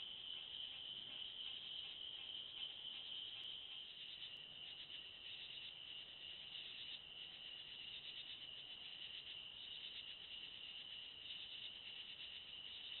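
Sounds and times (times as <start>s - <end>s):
night insects trilling: 0.0s - 13.0s.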